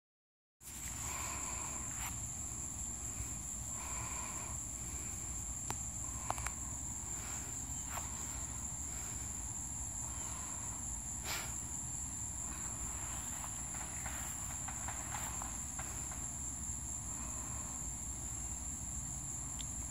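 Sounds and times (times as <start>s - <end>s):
crickets trilling: 0.6s - 19.9s
sharp clicks: 5.6s - 6.6s.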